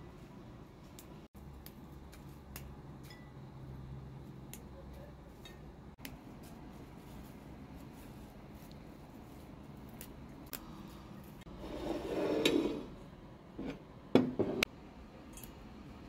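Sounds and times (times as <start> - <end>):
herb leaves snapping: 9.8 - 11.4.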